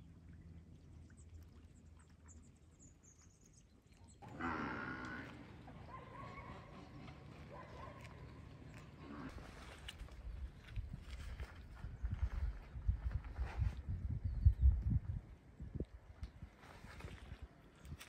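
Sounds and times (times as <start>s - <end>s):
water buffaloes grazing: 4.2s - 10.1s.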